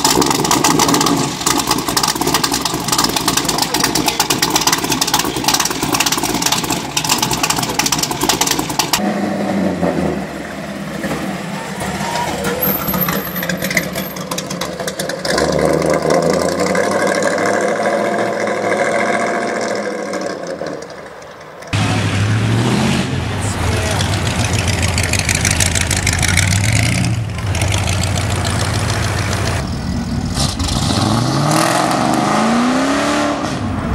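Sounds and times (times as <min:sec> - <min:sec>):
car engine running lumpy: 0:00.0 - 0:09.0, 0:10.2 - 0:17.2, 0:23.3 - 0:30.3
car accelerating past: 0:21.7 - 0:33.9.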